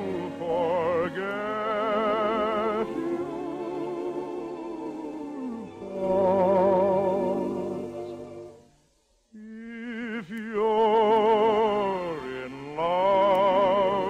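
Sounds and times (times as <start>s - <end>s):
orchestral accompaniment: 0.0s - 8.7s
operetta singing with vibrato: 0.0s - 8.8s, 9.4s - 14.0s.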